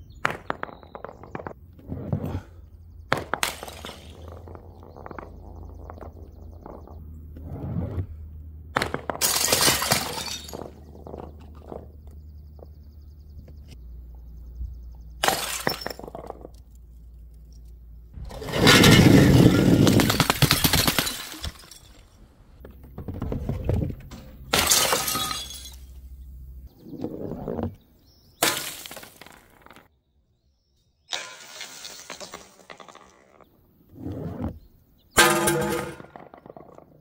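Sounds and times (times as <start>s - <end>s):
glass smashing on stone: 3.3s - 4.6s, 9.2s - 11.2s, 15.2s - 16.5s, 18.3s - 22.2s, 24.4s - 26.2s, 28.4s - 29.8s, 35.2s - 36.7s.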